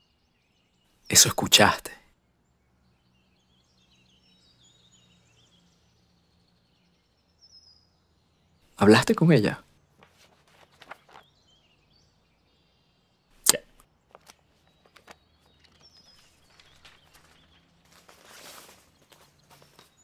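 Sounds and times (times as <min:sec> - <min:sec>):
faint bird chirps: 0:00.0 - 0:20.0
soft clicks and rustles: 0:10.0 - 0:11.4, 0:14.1 - 0:20.0
sharp click: 0:13.4 - 0:13.8.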